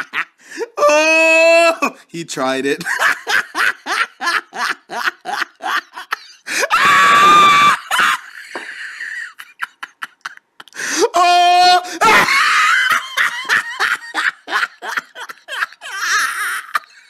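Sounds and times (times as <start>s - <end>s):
man laughing hard: 0.0s - 1.7s, 2.8s - 17.0s
loud high scream: 6.5s - 8.2s.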